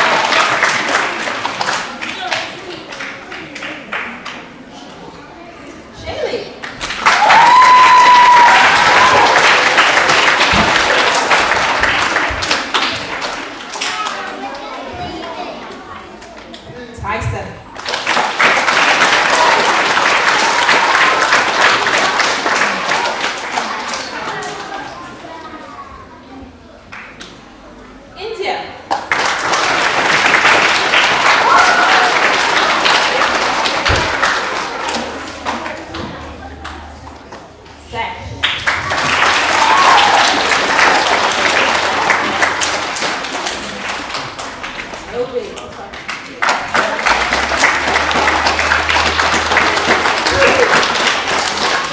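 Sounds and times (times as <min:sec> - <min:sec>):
audience applauding: 0:00.0 - 0:04.2, 0:06.6 - 0:14.5, 0:17.7 - 0:24.8, 0:28.9 - 0:36.8, 0:38.4 - 0:51.9.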